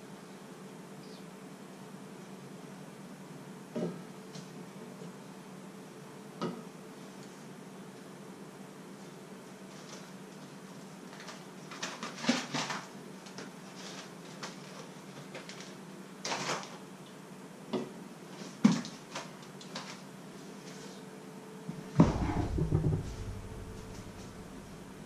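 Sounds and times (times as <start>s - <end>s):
packaging rustling: 11.1s - 16.8s
steady low hum: 21.0s - 25.0s.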